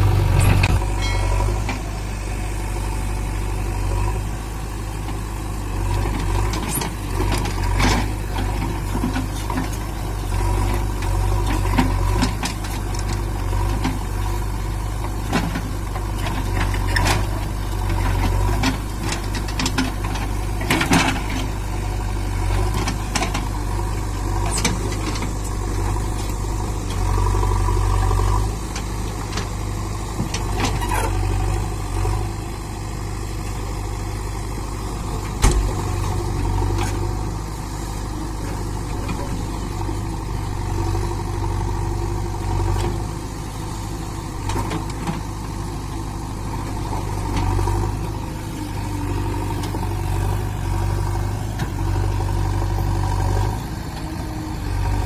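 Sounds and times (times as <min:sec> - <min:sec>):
diesel engine running: 0:00.0 - 0:55.0
sharp metal clank: 0:00.4 - 0:01.6.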